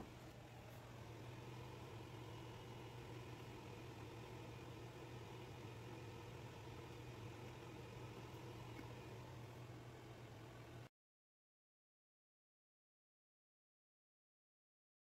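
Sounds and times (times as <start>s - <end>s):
faint low hum: 0.0s - 10.9s
light hiss: 0.0s - 10.9s.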